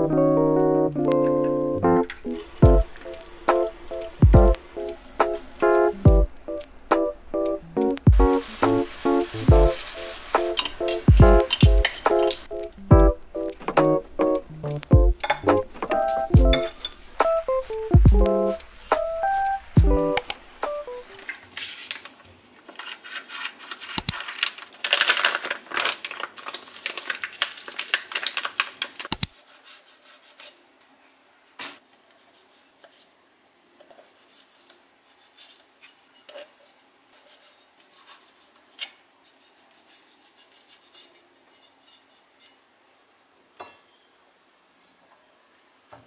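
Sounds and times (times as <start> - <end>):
utensils tapping and clinking: 7.8 - 12.7, 15.2 - 19.1
rubbing and scraping: 8.2 - 12.5, 20.6 - 24.2, 29.4 - 30.6, 33.8 - 42.6.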